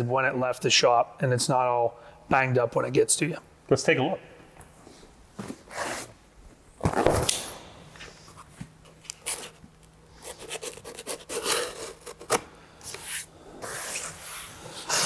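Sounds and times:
knife slitting packing tape: 10.3s - 12.4s.

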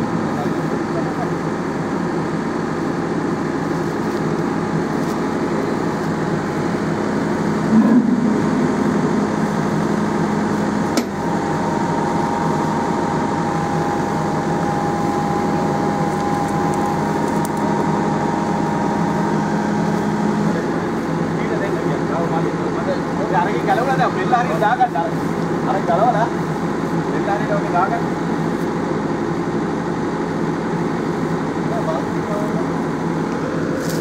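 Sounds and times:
diesel engine running: 0.0s - 34.0s
high steady whine: 0.0s - 34.0s
sharp knock: 7.7s - 9.6s.

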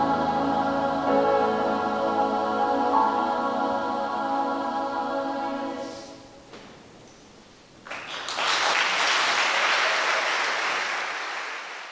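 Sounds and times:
children's choir holding a chord: 0.0s - 6.3s
audience applause: 7.8s - 11.9s.

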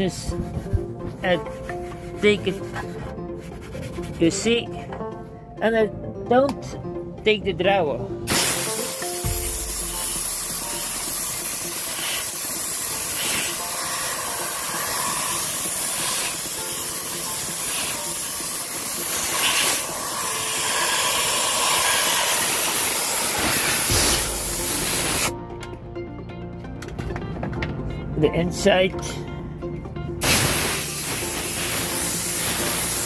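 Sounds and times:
compressed air blow gun hissing: 8.3s - 25.4s, 30.2s - 33.0s.

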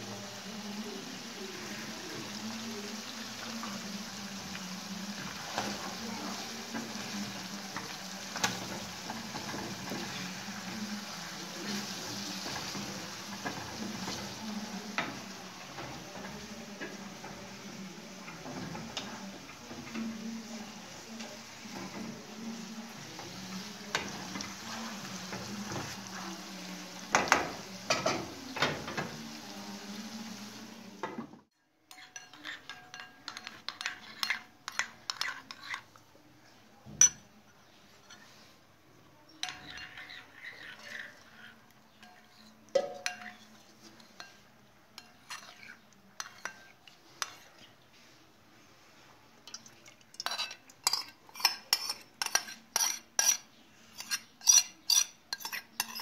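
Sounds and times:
food sizzling in frying pan: 0.0s - 31.1s
spoon clinking china bowl: 31.9s - 35.8s, 42.0s - 43.5s, 54.0s - 56.0s
metal spoon stirring paste: 31.9s - 36.1s, 37.0s - 38.6s, 39.3s - 48.1s, 49.4s - 56.0s.

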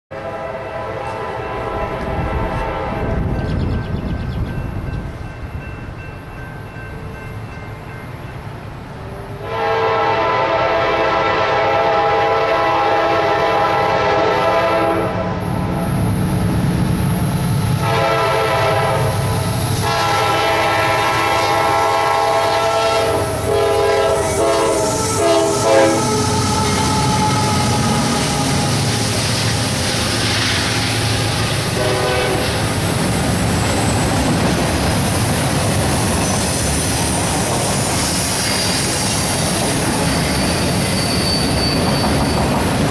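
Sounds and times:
diesel locomotive horn blasts: 0.1s - 3.4s, 9.0s - 16.1s, 17.7s - 32.9s
rail cars rumbling and clattering: 0.1s - 42.9s.

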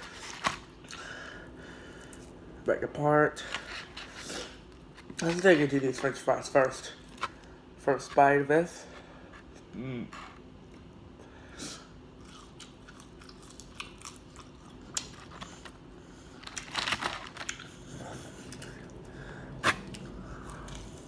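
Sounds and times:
chewing and crunching fried food: 12.1s - 21.0s.

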